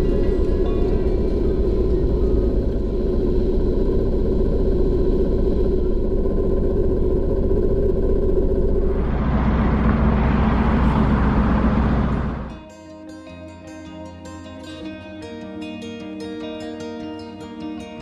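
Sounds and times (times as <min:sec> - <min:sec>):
boat diesel engine droning: 0:00.0 - 0:12.6.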